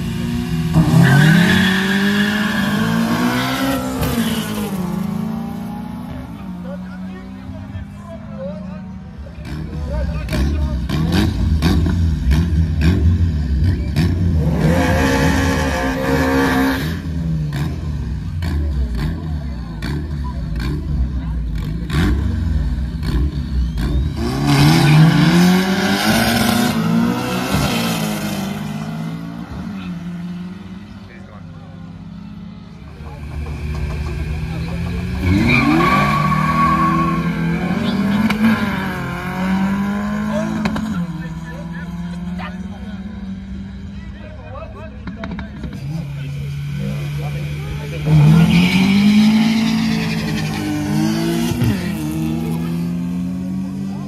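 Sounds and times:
drag car engines revving: 0.0s - 54.0s
tyre squeal: 35.1s - 38.0s, 48.3s - 51.8s.

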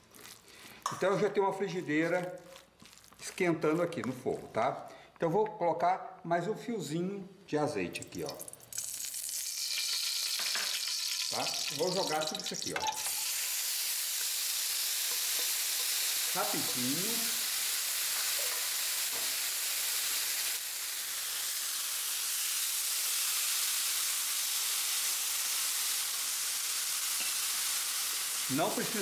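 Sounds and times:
food sizzling in frying pan: 8.0s - 29.0s.

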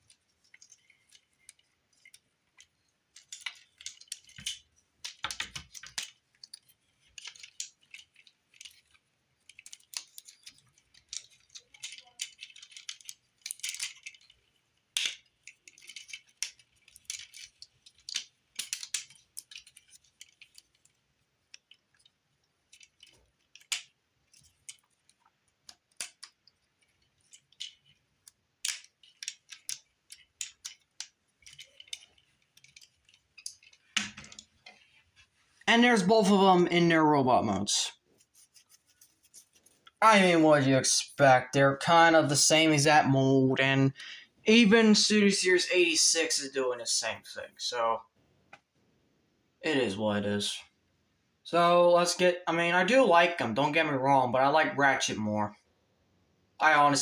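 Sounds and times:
plastic toy parts clicking: 0.0s - 34.8s.

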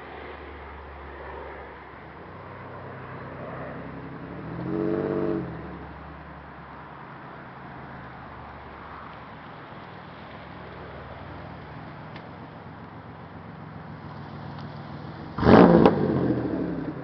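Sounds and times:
loud car engine exhaust: 3.7s - 6.0s, 13.6s - 17.0s.

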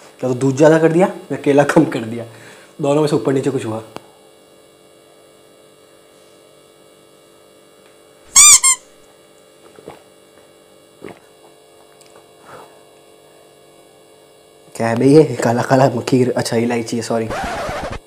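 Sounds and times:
steady electrical hum: 0.0s - 18.0s
high-pitched squeak: 8.4s - 8.9s, 17.3s - 18.0s.

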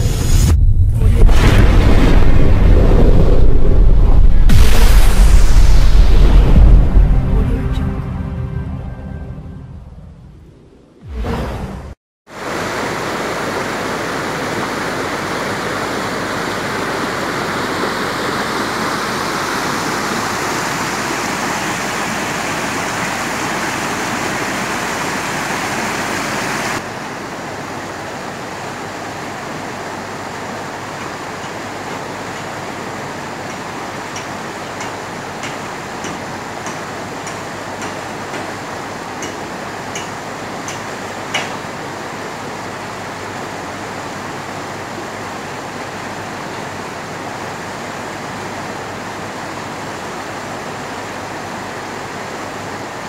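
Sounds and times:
river rapids rushing: 12.3s - 53.0s.

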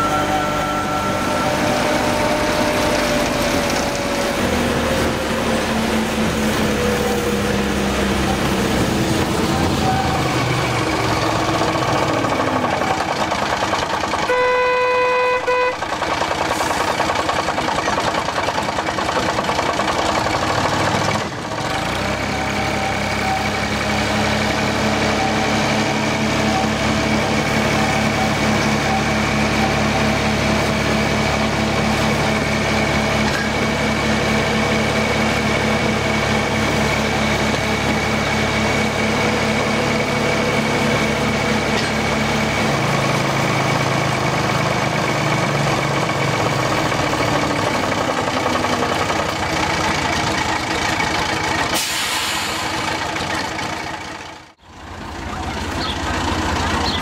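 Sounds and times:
locomotive horn toot: 0.0s - 4.2s, 14.2s - 16.0s
diesel locomotive engine running: 0.0s - 57.0s.

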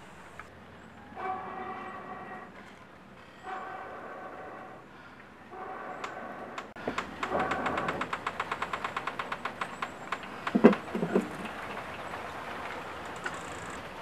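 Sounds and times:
fast sharp clicks: 6.0s - 11.3s.

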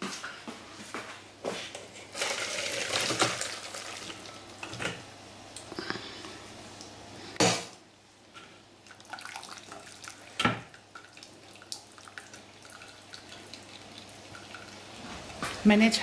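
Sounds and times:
liquid dripping through strainer: 8.8s - 14.9s.

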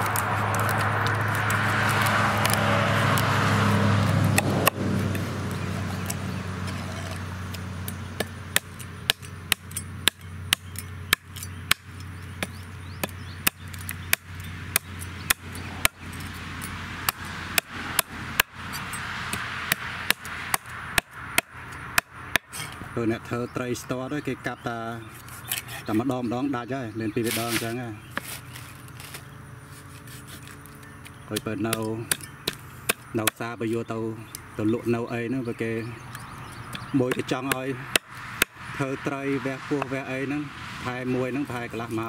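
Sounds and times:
cleaver chopping on wooden board: 0.0s - 22.8s, 31.3s - 33.5s, 36.6s - 38.6s
passing vehicle hum: 0.0s - 42.0s.

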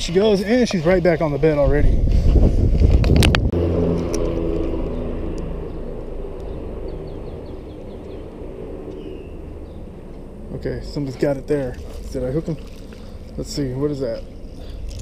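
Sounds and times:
traffic on bridge overhead: 3.4s - 15.0s.

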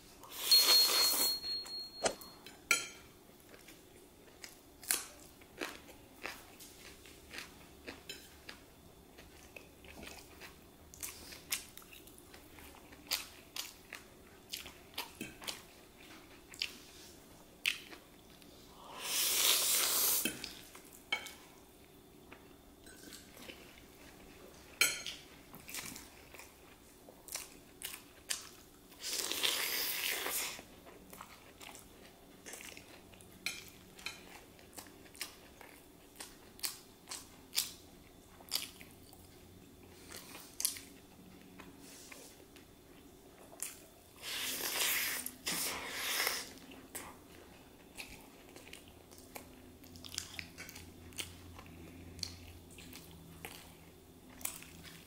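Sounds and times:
close chewing and biting: 34.3s - 39.3s, 43.4s - 55.0s.

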